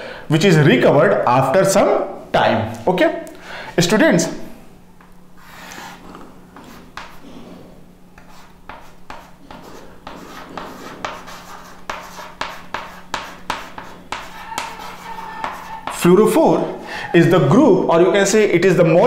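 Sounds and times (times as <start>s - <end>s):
chalk scratching on chalkboard: 5.4s - 6.0s, 6.6s - 7.4s, 8.2s - 16.0s.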